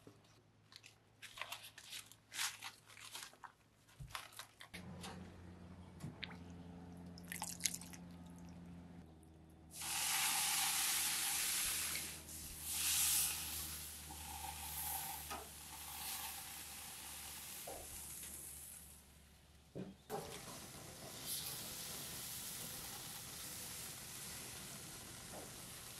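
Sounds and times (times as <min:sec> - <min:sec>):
corn sizzling on grill: 0:09.8 - 0:19.4, 0:20.1 - 0:25.9.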